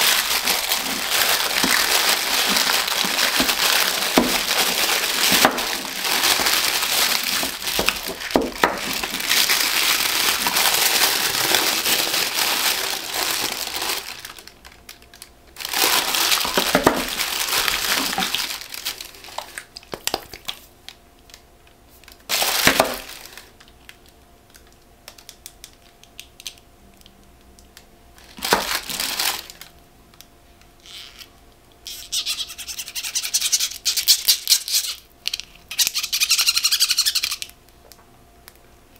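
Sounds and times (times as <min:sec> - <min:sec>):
tissue paper crinkling: 0:00.0 - 0:15.0, 0:15.6 - 0:20.6, 0:22.3 - 0:23.6, 0:28.2 - 0:29.7.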